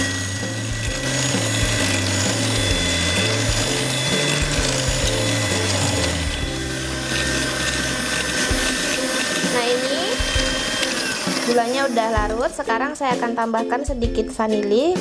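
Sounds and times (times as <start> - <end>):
electric hand mixer whining: 0.0 - 13.0.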